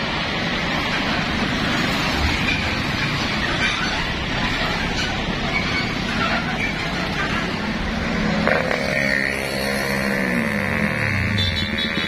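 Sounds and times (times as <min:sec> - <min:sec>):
truck engine and tyres rumbling: 0:00.0 - 0:12.0
vehicle engine passing: 0:06.8 - 0:12.0.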